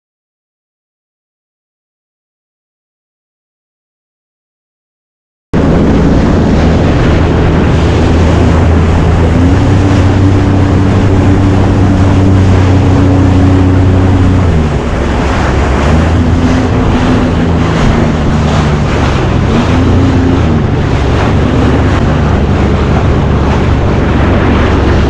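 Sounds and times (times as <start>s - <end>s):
hull slapping through water: 5.6s - 25.0s
jet ski engine running: 5.6s - 25.0s
wind buffeting microphone: 5.6s - 25.0s.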